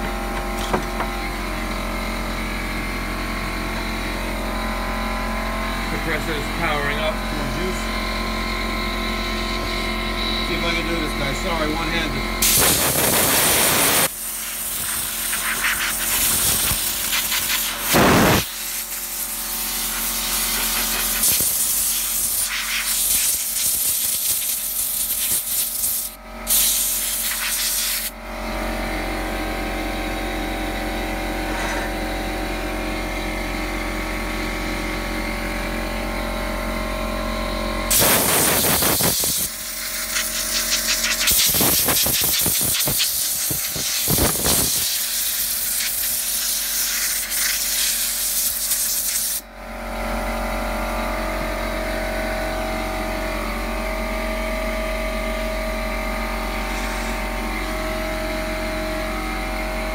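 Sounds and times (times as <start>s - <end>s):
air compressor humming: 0.0s - 59.9s
compressed air hissing from blow gun: 12.4s - 28.1s, 37.9s - 49.4s.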